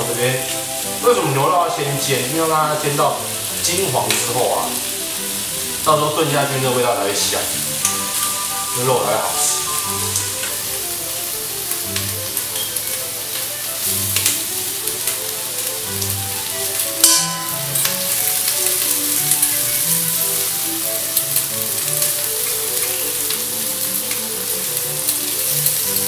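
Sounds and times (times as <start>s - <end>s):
meat sizzling in frying pan: 0.0s - 26.0s
metal tongs clacking: 17.0s - 19.6s.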